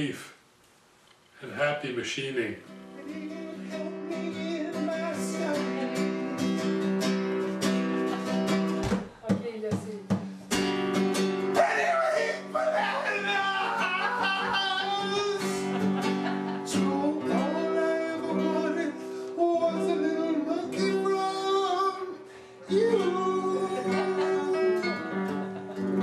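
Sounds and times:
guitar: 1.5s - 26.0s
man singing: 3.0s - 6.5s, 11.6s - 15.8s, 16.6s - 25.3s.

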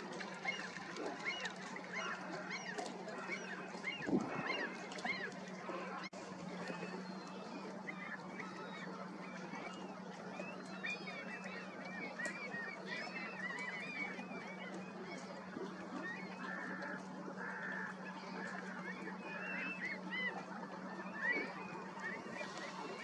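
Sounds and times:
constant low hum: 0.0s - 23.0s
flock of gulls calling: 0.0s - 23.0s.

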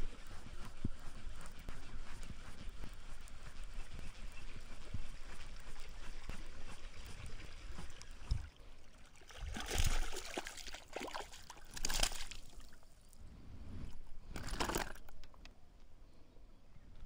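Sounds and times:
fish splashing at water surface: 7.8s - 12.7s.

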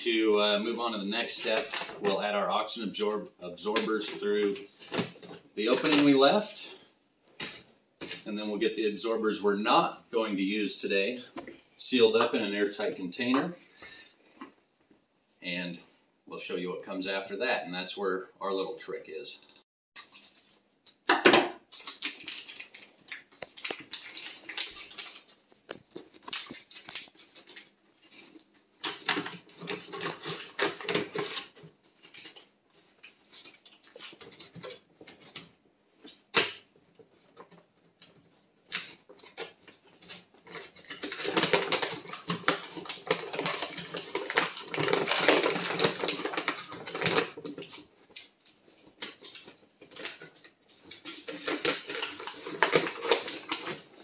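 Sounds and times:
plastic bags crinkling: 0.1s - 6.7s, 21.7s - 54.0s.

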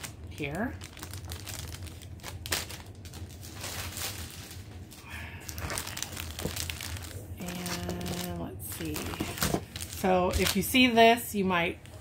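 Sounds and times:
plastic packaging crinkling: 0.0s - 11.3s.

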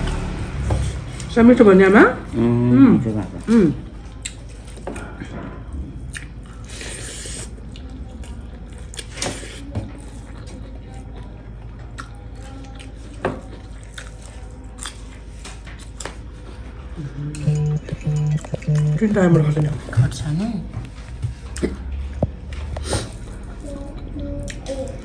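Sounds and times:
person chewing and smacking: 4.1s - 5.2s, 6.0s - 10.6s, 11.8s - 16.3s.

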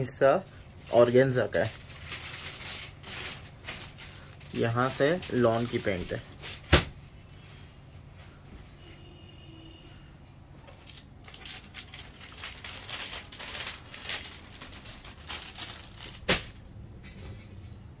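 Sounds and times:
rustling crinkling handling noise: 0.6s - 8.8s, 10.5s - 17.9s.

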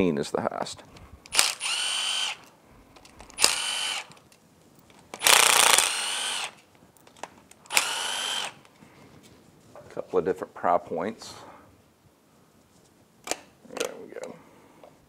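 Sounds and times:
cordless driver whining: 1.3s - 4.2s, 5.2s - 6.6s, 7.7s - 8.6s.

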